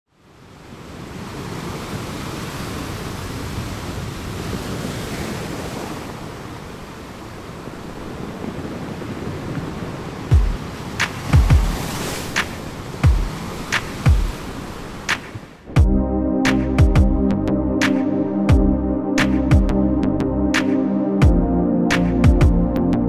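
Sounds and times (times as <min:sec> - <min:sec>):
steady rushing noise: 0:09.3 - 0:15.9
deep low thump: 0:15.7 - 0:16.0, 0:16.7 - 0:17.3, 0:18.5 - 0:18.8, 0:19.4 - 0:19.8, 0:21.2 - 0:21.5, 0:22.2 - 0:22.7.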